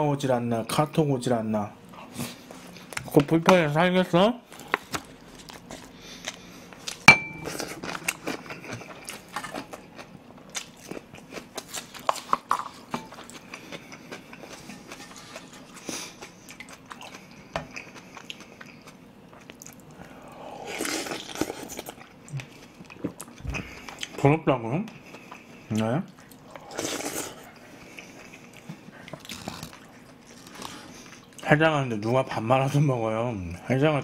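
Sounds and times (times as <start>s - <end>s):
chewing and mouth sounds: 4.6s - 20.1s, 20.7s - 24.2s, 24.9s - 31.5s
sharp clink with ring: 7.1s - 7.5s.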